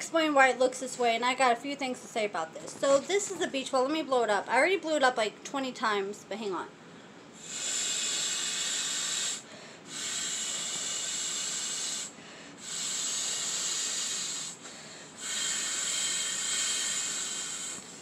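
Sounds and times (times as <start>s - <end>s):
person blowing into beach ball: 7.4s - 14.6s, 15.2s - 17.9s.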